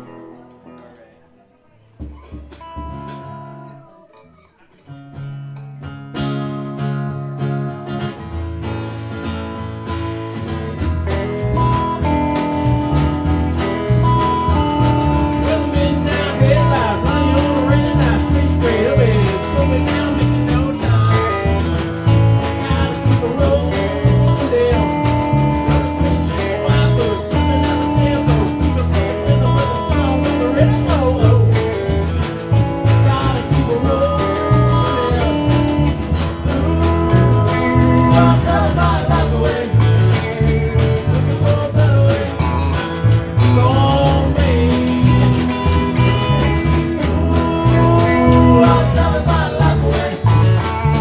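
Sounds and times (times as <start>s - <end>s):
strummed acoustic guitar: 0.0s - 51.0s
bass rhythm: 8.4s - 51.0s
wavering melody line: 33.6s - 39.7s, 44.9s - 49.8s.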